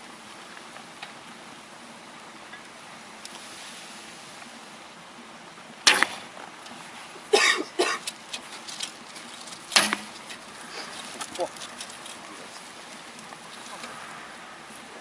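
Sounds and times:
short coughs: 7.3 - 8.0.

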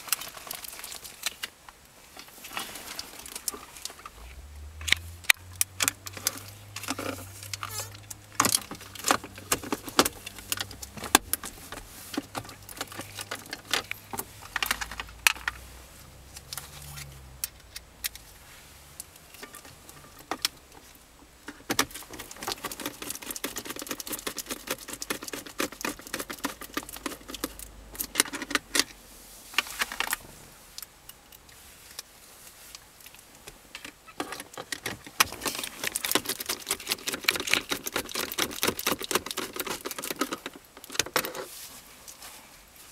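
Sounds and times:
plastic trim clicking and rattling: 33.8 - 41.5
screwdriver prying plastic: 34.3 - 41.4.

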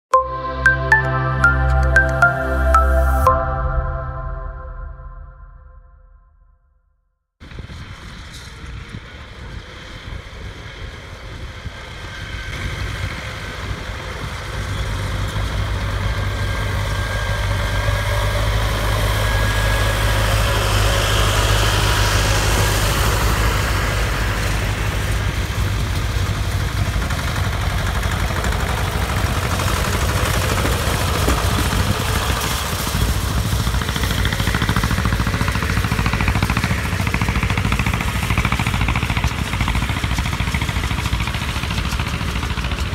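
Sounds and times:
tractor diesel engine running: 9.1 - 42.9.

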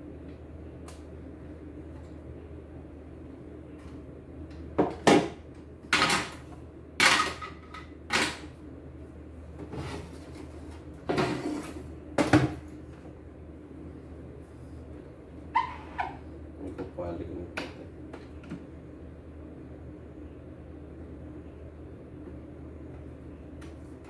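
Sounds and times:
steady low hum: 0.0 - 24.0
plastic parts clattering on workbench: 7.0 - 8.4.

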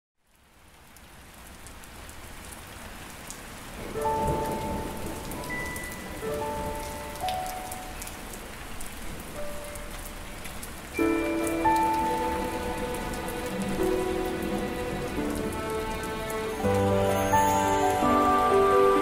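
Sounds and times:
steady rain: 0.2 - 19.0
thunder rumble: 3.8 - 7.0.

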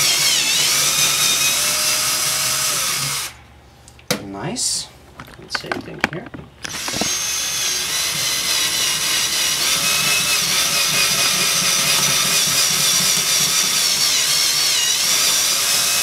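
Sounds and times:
cordless drill motor whine: 0.0 - 3.4, 6.6 - 16.0.

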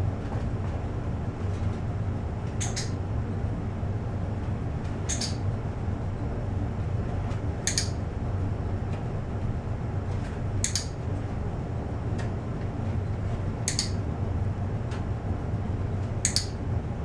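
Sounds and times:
steady low hum: 0.0 - 17.0
clicker double clicks: 2.6 - 3.0, 5.1 - 5.4, 7.6 - 8.0, 10.6 - 11.0, 13.7 - 14.0, 16.2 - 16.6.

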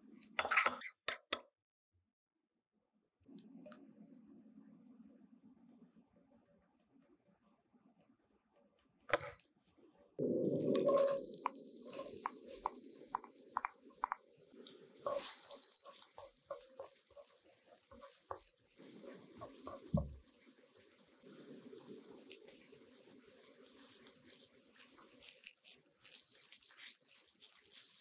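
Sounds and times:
onion sizzling in hot oil: 10.5 - 28.0
wooden spatula stirring: 10.6 - 28.0.

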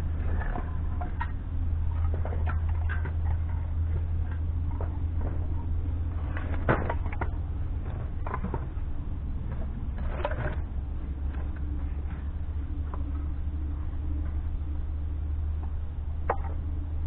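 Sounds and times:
low rumble: 0.0 - 17.0
firewood knocking and clattering: 0.2 - 13.3.

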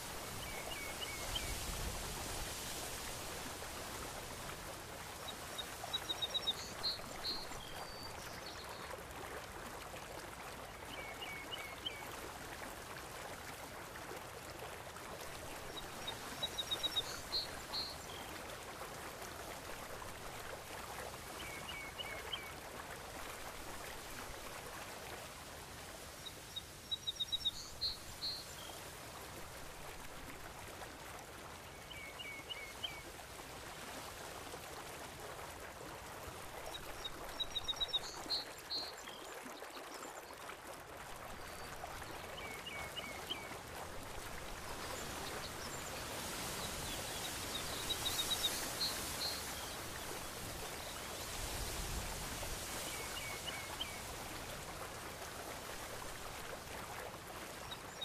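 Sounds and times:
sea water rushing: 0.0 - 8.0, 40.8 - 58.0.

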